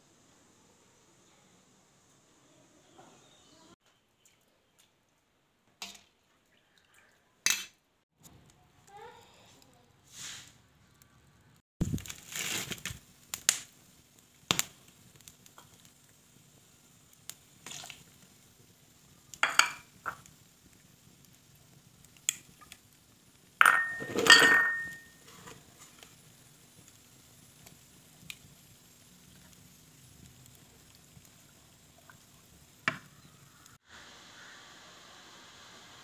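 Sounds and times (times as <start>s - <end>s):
liquid splashes and drips: 4.1s - 7.3s, 17.6s - 18.1s
spoons clinking on metal pot: 19.4s - 19.9s, 23.6s - 25.2s
metallic clatter and ring: 23.7s - 25.1s.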